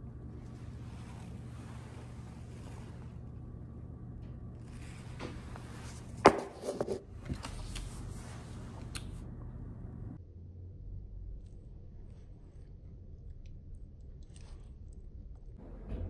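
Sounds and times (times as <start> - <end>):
low room hum: 0.0 - 16.0
paper cup knock: 6.2 - 7.0.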